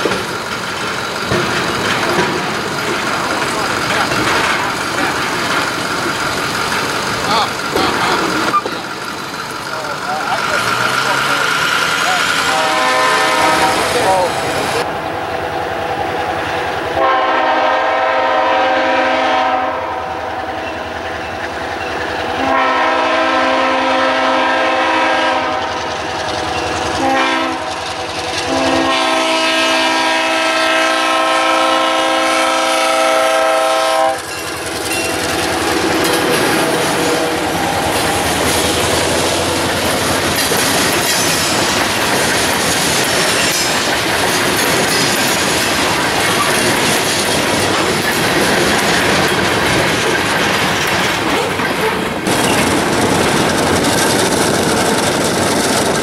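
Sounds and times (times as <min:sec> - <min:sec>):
train wheels clacking over rails: 0:00.0 - 0:56.0
locomotive air horn blasts: 0:12.3 - 0:14.3, 0:17.0 - 0:20.1, 0:22.4 - 0:25.7, 0:27.0 - 0:27.8, 0:28.4 - 0:34.3.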